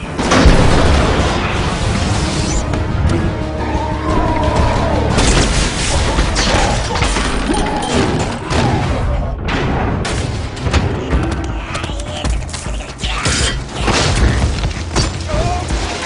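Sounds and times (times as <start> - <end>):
action film music score: 0.0 - 16.0
booms and metal crashes: 0.2 - 2.2, 5.1 - 11.1.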